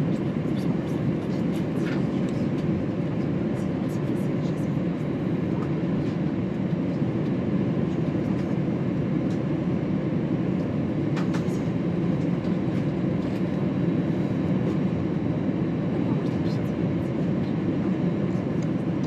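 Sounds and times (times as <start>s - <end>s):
airplane cabin rumble: 0.0s - 19.0s.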